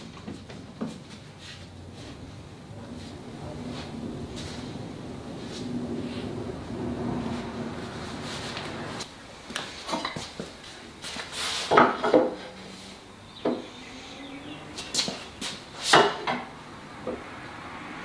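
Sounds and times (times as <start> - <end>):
steady low hum: 1.0 - 9.5.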